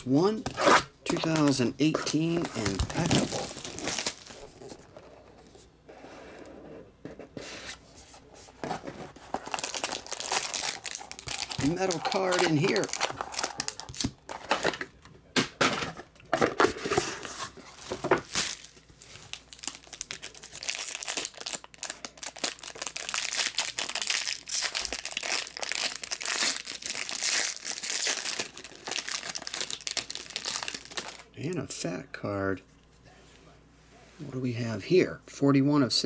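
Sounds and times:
foil wrapper crinkling and tearing: 0:01.1 - 0:04.6, 0:09.2 - 0:14.6, 0:18.2 - 0:31.3.

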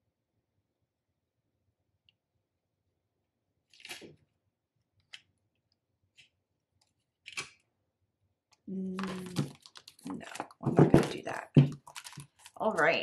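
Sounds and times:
paper banknotes rustling: 0:11.8 - 0:13.0.

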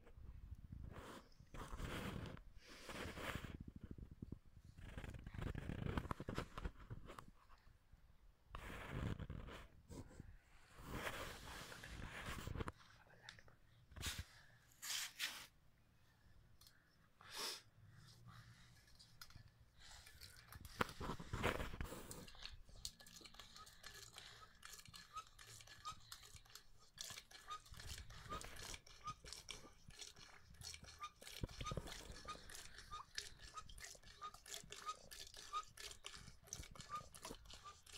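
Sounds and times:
hand pump clicking and squeaking: 0:22.2 - 0:37.9.

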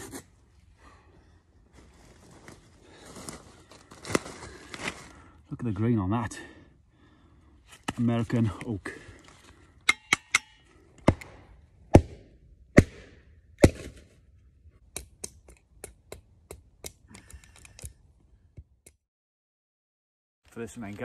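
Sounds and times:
log striking wood: 0:09.9 - 0:14.1.

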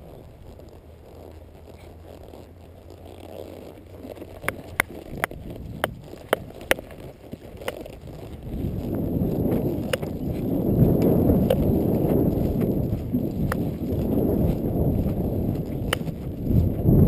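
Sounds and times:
horse hoofbeats: 0:00.0 - 0:17.0
wind on microphone: 0:04.0 - 0:17.0.

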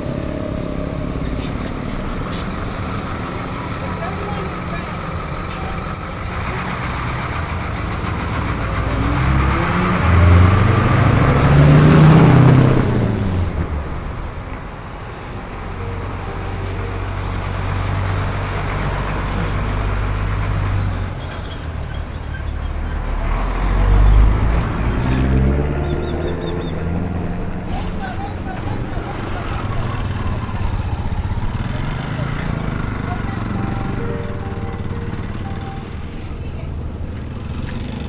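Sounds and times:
bus engine passing by: 0:00.0 - 0:38.0
vehicle engine revving up: 0:06.3 - 0:13.8, 0:23.1 - 0:34.0
air brake hiss: 0:11.4 - 0:13.5.

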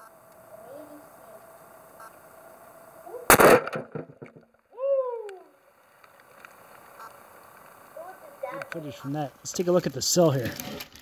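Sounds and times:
battery cell bursting with bang: 0:03.3 - 0:04.4
person exclaiming: 0:04.7 - 0:05.6.

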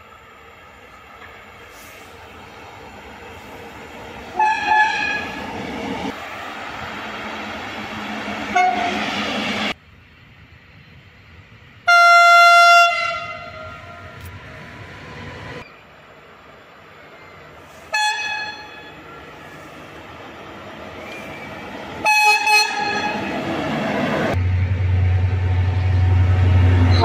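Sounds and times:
freight train running noise: 0:00.0 - 0:27.0
locomotive horn blasts: 0:04.4 - 0:05.4, 0:08.5 - 0:09.0, 0:11.9 - 0:14.1, 0:17.9 - 0:19.0, 0:22.0 - 0:23.2, 0:26.8 - 0:27.0.

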